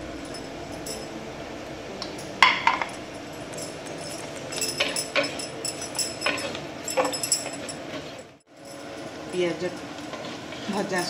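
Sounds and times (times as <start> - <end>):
onion frying in oil: 7.5 - 11.0.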